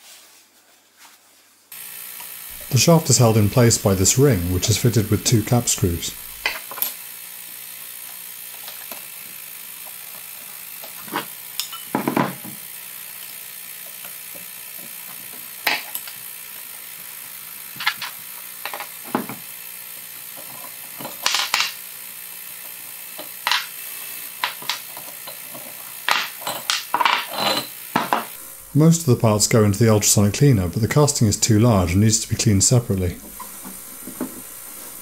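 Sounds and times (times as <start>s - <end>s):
faint steady hiss: 2.5s - 6.5s
metal parts clinking on wooden bench: 11.6s - 12.4s, 20.4s - 21.8s, 23.2s - 23.7s, 24.4s - 28.3s.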